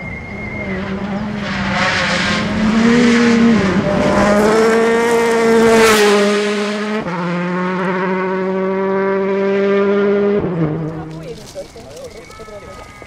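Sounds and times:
rally car engine passing by: 0.0 - 11.3
gravel spraying: 10.9 - 13.0.

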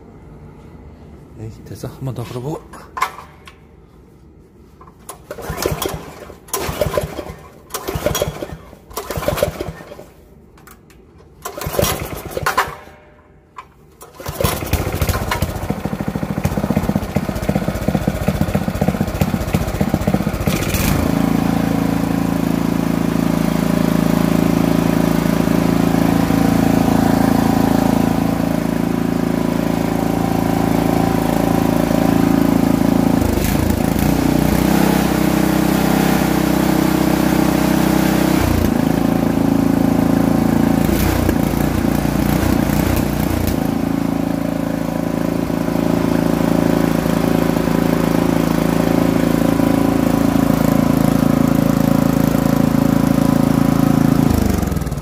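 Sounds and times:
starter cord pulls: 2.9 - 3.6
small engine running: 14.1 - 55.0.

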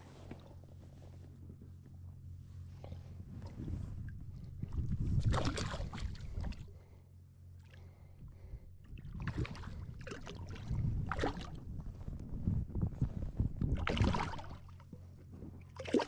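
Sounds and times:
river water splashing: 5.2 - 6.5.

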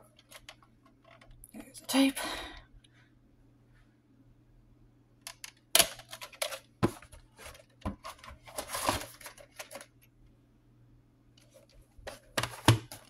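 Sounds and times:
plastic cassette clicks and rattles: 5.3 - 6.7, 7.5 - 10.0.

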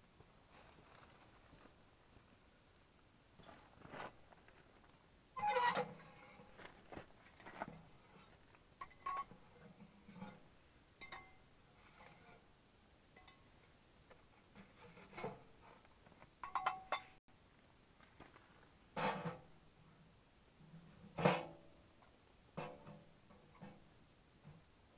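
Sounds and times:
wood stove metallic pings: 11.0 - 11.5, 16.4 - 17.2.

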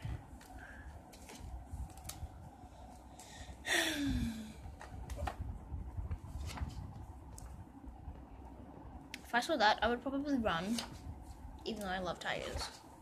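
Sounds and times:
book pages being turned: 0.3 - 3.0, 6.0 - 7.5, 10.6 - 12.9.

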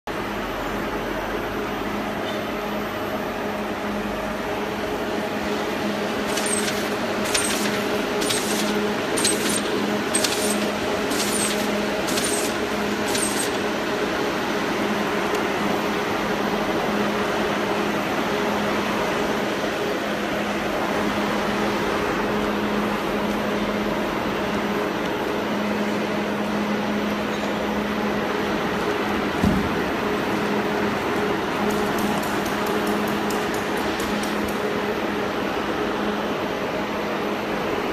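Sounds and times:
labelling machine hum: 0.1 - 37.9
machine sharp click: 6.3 - 13.6.

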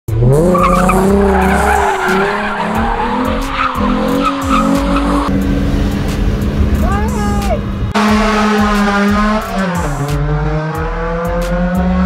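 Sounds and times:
car engine revving hard: 0.1 - 6.8, 7.6 - 12.0
tyres squealing on asphalt: 0.3 - 5.3.

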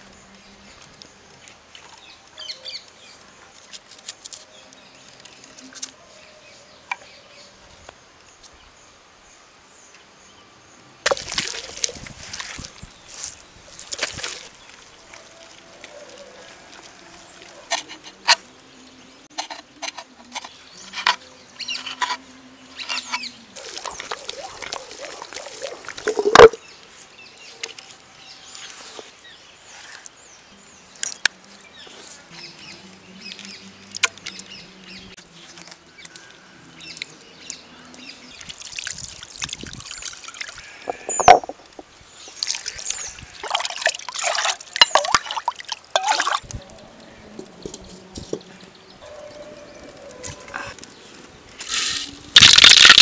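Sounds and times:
wet squelching and sloshing: 11.1 - 18.0, 23.5 - 26.6, 38.4 - 46.5
stone-on-stone knocks: 40.9 - 41.8.

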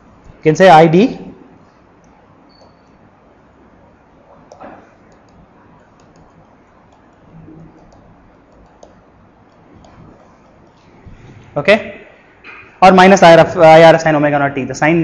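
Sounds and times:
stylus tapping on tablet screen: 4.5 - 10.8.

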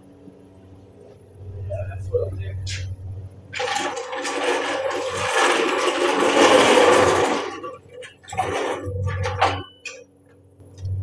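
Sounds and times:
floor jack rolling on concrete: 3.5 - 10.0
metal clanks and scrapes: 3.5 - 10.1.

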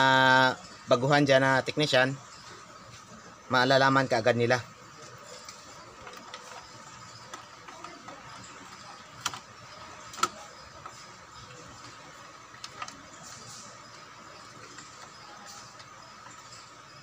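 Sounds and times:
sharp clicks: 5.4 - 11.6.

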